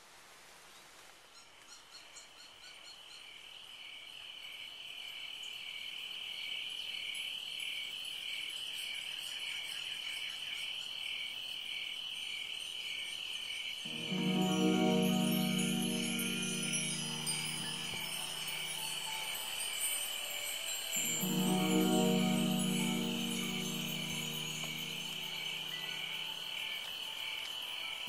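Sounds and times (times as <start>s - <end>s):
insects buzzing: 13.2s - 28.0s.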